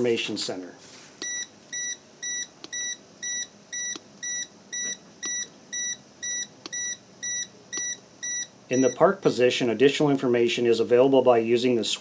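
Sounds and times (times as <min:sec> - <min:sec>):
short high-pitched warning beeps: 0:01.2 - 0:09.0.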